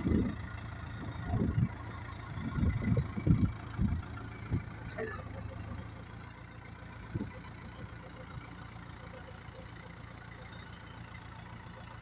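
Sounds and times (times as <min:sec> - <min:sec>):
diesel engine running: 0:00.0 - 0:12.0.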